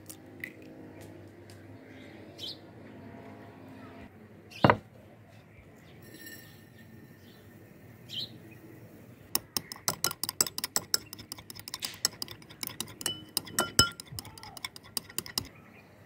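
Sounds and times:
spoon clinking against glass bowl: 0:09.4 - 0:15.5.

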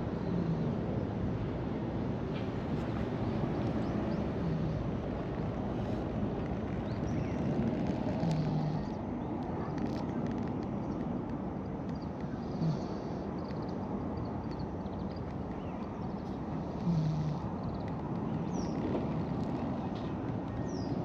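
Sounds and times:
cat snoring: 0:08.2 - 0:08.9, 0:12.4 - 0:13.2, 0:16.6 - 0:17.4.

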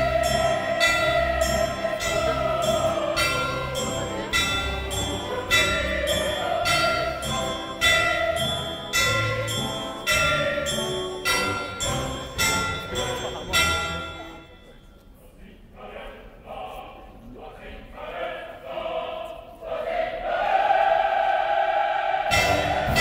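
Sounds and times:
orchestral music held tones: 0:00.0 - 0:16.8, 0:17.4 - 0:23.0
loud accented strike: 0:22.3 - 0:23.0.

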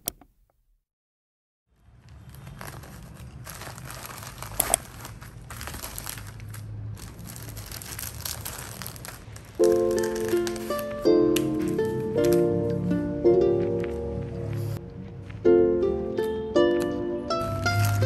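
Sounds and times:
plastic packaging crinkling: 0:01.8 - 0:12.6, 0:17.4 - 0:18.0.

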